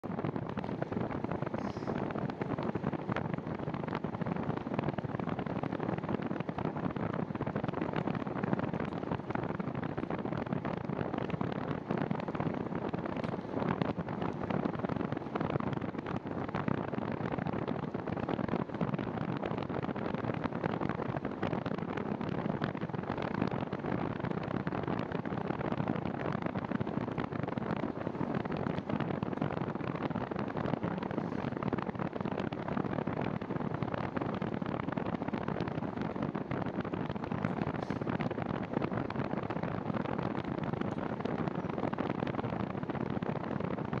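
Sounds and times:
bicycle tyre noise: 0.0 - 44.0
wind rushing on microphone: 0.0 - 44.0.

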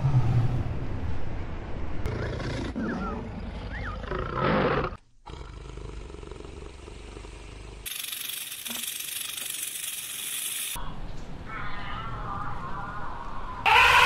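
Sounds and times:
low rumbling noise: 0.0 - 2.1.

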